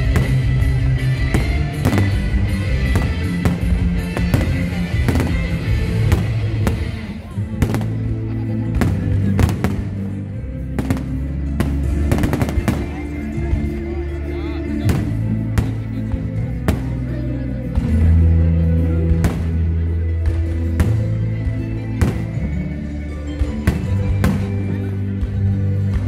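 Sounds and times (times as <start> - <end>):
fireworks bursting: 0.0 - 13.6, 14.8 - 15.9, 20.2 - 21.4, 22.0 - 22.6, 23.6 - 24.8
loud music with heavy bass: 0.0 - 13.8.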